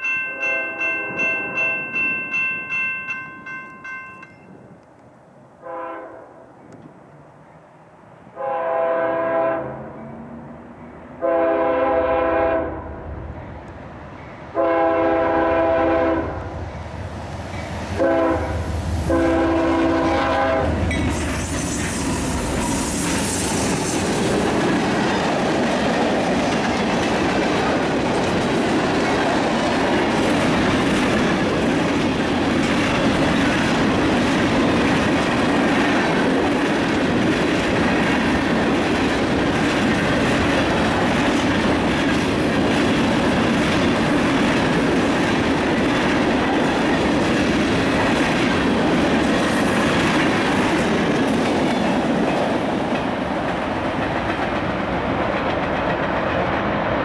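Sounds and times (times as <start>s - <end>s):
diesel locomotives passing: 0.0s - 57.0s
locomotive air horn blasts: 5.6s - 6.4s, 8.4s - 10.0s, 11.2s - 12.9s, 14.6s - 16.5s, 17.9s - 20.9s.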